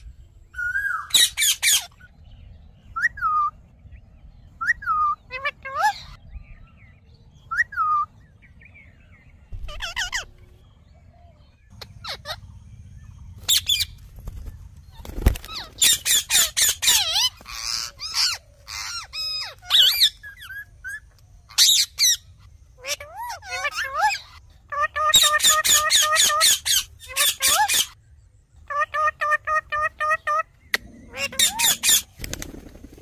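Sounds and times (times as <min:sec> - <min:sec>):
parakeets squawking and chirping: 0:00.6 - 0:03.6, 0:04.6 - 0:06.6, 0:09.6 - 0:10.8, 0:11.7 - 0:28.0, 0:28.6 - 0:32.2.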